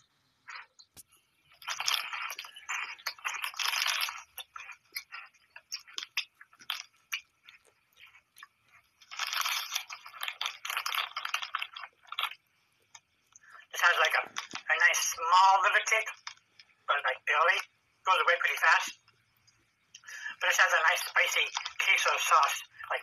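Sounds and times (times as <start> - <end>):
person crunching corn snacks: 1.5 - 12.5.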